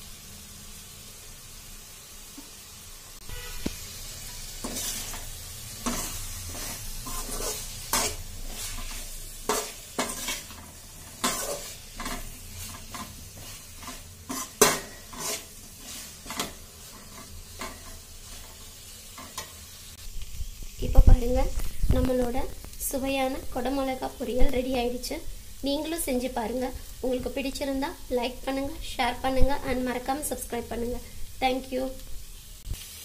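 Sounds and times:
vegetables sizzling in oil: 0.0s - 33.0s
ladle scraping metal pan: 4.6s - 18.5s.

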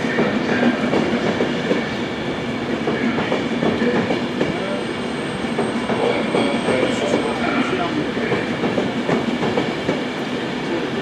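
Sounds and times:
train rumbling on track: 0.0s - 11.0s.

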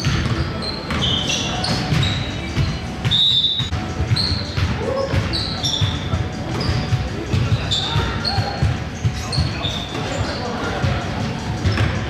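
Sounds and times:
basketball bouncing: 0.0s - 9.5s
sneakers squeaking: 0.0s - 12.0s.

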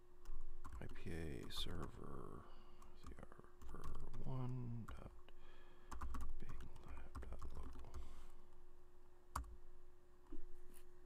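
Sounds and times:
faint steady hum: 0.0s - 11.0s
computer keyboard typing: 0.2s - 2.0s, 2.9s - 5.0s, 5.9s - 8.0s, 9.4s - 9.6s.

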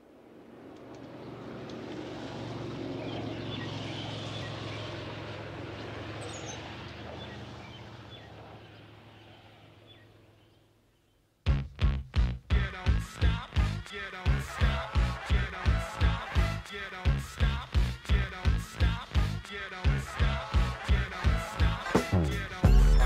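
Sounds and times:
low hum: 0.0s - 10.9s
faint bird chirps: 6.2s - 11.3s.

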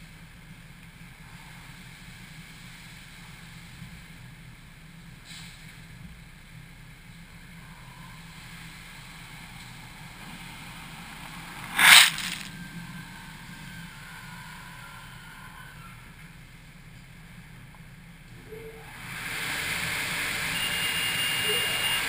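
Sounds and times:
car wash mechanical hum: 0.0s - 22.0s
brief hiss: 5.2s - 5.8s, 11.5s - 12.6s.

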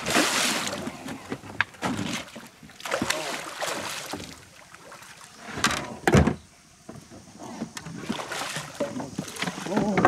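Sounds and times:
fish splashing in water: 0.0s - 1.1s, 1.9s - 5.3s.

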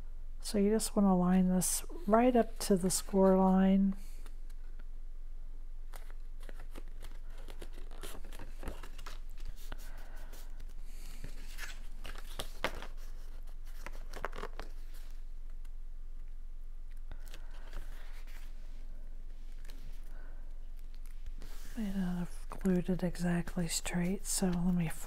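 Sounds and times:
cardstock rustling and crinkling: 5.9s - 15.6s, 20.8s - 25.0s.

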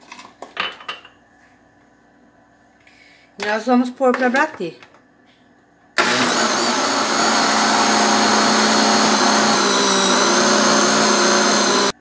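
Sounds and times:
blender motor whining: 6.0s - 12.0s.

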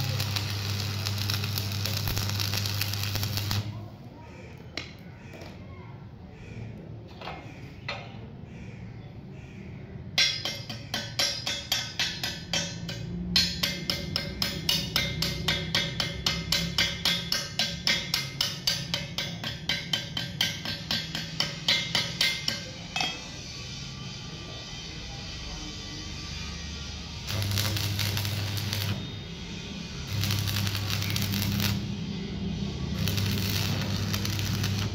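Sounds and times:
chipping hammer tapping on metal: 10.2s - 23.2s, 27.3s - 29.0s, 33.0s - 34.9s.

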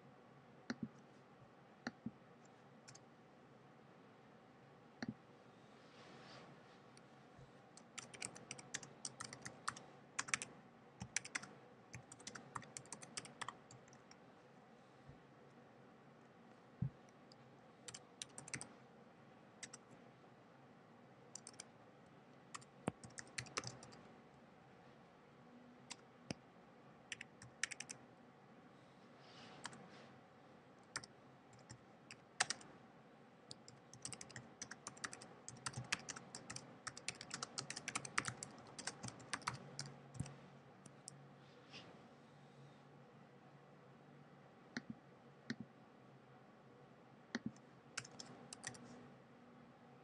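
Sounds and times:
keyboard typing: 7.8s - 14.2s, 17.3s - 18.7s, 19.6s - 19.8s, 21.4s - 21.7s, 22.5s - 24.0s, 27.1s - 28.0s, 30.9s - 32.7s, 33.5s - 40.4s, 47.4s - 48.9s.

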